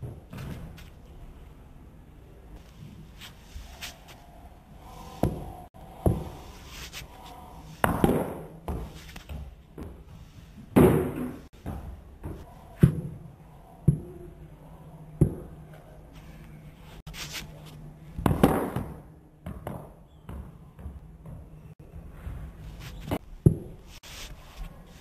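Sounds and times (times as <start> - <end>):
ball bouncing on tiled floor: 5.2 - 6.4, 7.8 - 10.1, 10.8 - 13.2, 15.2 - 15.6, 18.2 - 22.4, 23.0 - 23.8
cricket bat hitting ball: 7.8 - 8.9, 18.2 - 19.0.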